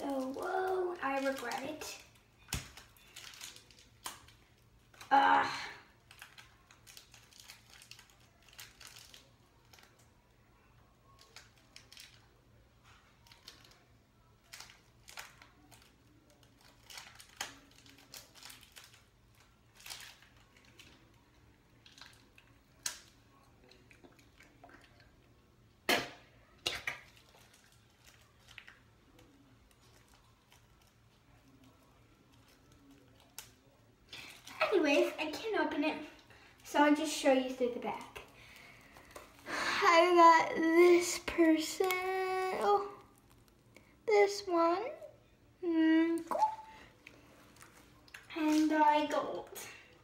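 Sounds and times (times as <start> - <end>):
plastic packet crinkling: 0.0 - 5.1, 5.9 - 10.2, 11.0 - 25.1, 26.8 - 35.4, 41.4 - 43.8.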